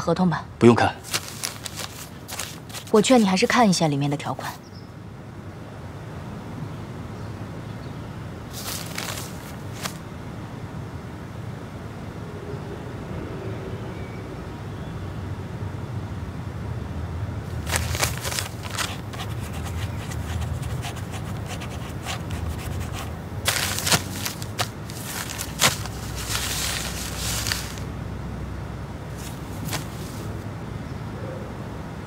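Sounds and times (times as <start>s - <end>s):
paper rustling: 1.0s - 3.6s, 8.5s - 10.0s, 17.5s - 27.9s, 29.1s - 30.4s
pen scratching on paper: 17.8s - 27.7s.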